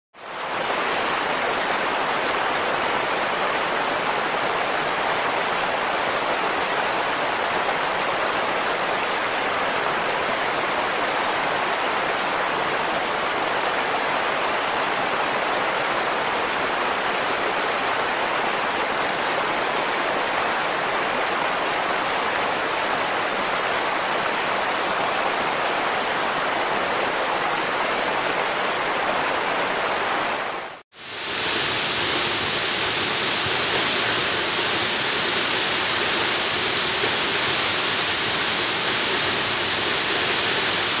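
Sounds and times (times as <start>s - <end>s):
waterfall rushing: 0.2s - 41.0s.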